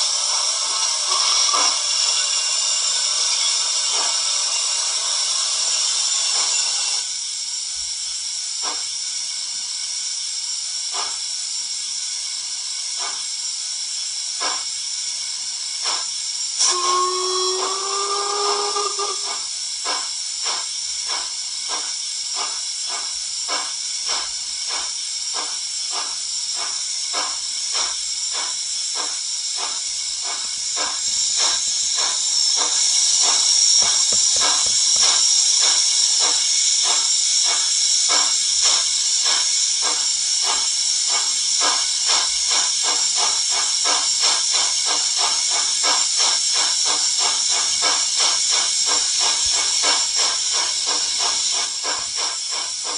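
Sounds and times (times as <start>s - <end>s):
steam hissing: 0.0s - 52.9s
steam locomotive chuffing: 0.0s - 52.9s
steam locomotive whistle: 16.6s - 19.5s.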